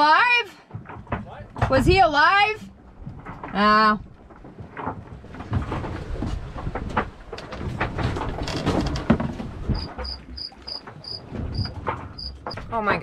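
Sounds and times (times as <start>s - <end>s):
rumbling noise: 0.8s - 13.0s
scattered knocks and clicks: 2.9s - 13.0s
cricket chirping: 9.7s - 12.5s.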